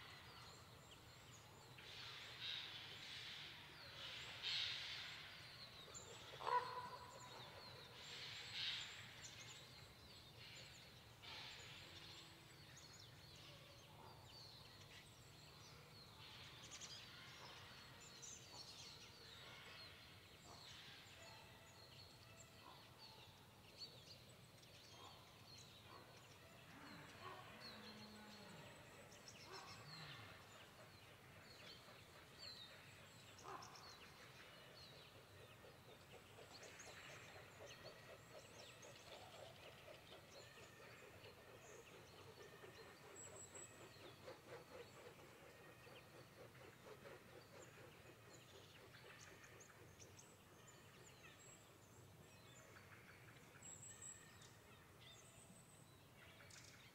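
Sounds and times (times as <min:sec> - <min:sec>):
faint bird calls: 0:06.1 - 0:07.4.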